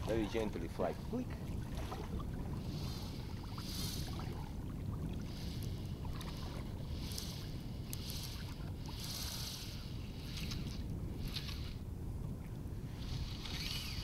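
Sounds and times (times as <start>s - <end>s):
wind rumble on microphone: 0.0s - 14.0s
fishing reel drag whirring: 1.8s - 11.9s, 12.8s - 14.0s.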